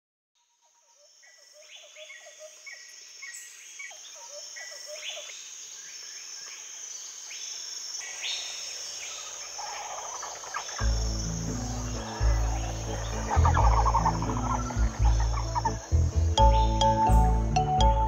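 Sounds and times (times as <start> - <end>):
high insect drone: 0.6 - 18.0
birds calling: 8.1 - 18.0.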